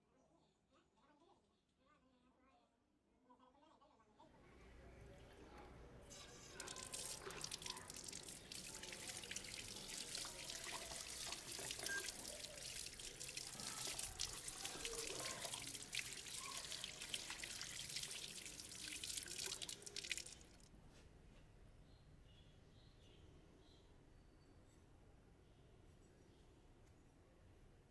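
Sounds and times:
water splashing over metal: 6.3 - 20.7.

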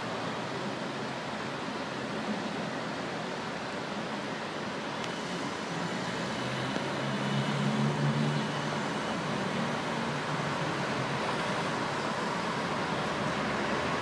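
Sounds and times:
city street traffic: 0.0 - 14.0
passing vehicle drone: 5.1 - 14.0.

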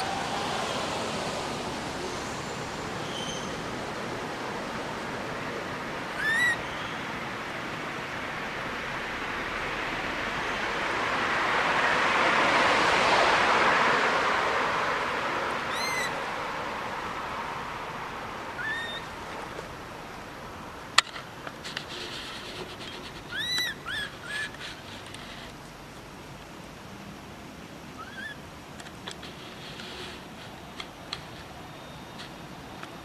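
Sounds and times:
rushing noise: 0.0 - 21.0
baby monkey squeaking: 6.2 - 6.6, 15.7 - 16.1, 18.6 - 19.0, 23.3 - 24.5.

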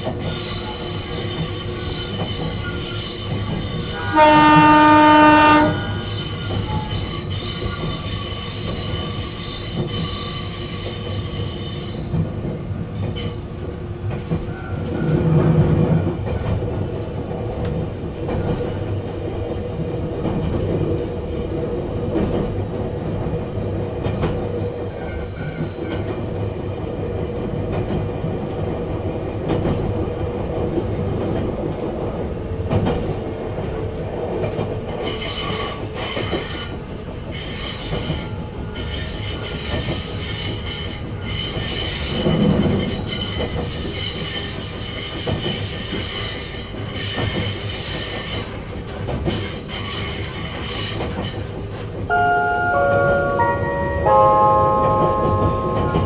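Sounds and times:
train wheels squealing on rails: 0.0 - 17.2, 24.1 - 26.7, 29.5 - 56.0
rail joint clicks: 0.0 - 56.0
electric train running: 32.7 - 56.0.

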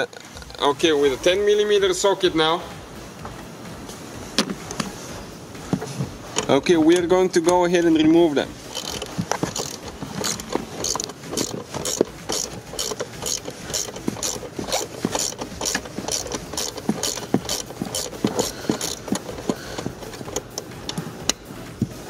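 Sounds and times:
ratchet clicking: 6.3 - 21.5.

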